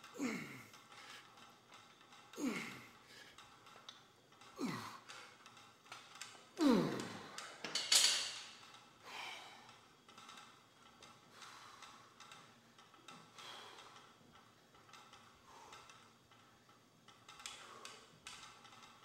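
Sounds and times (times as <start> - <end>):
man grunting with effort: 0.1 - 0.8, 2.4 - 2.9, 4.6 - 5.0, 6.6 - 7.4.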